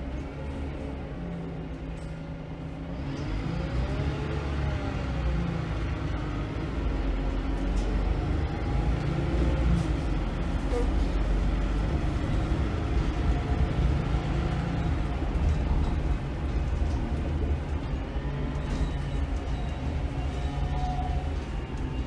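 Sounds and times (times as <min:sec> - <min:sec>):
bus diesel engine drone: 0:00.0 - 0:22.0
road noise: 0:00.0 - 0:22.0.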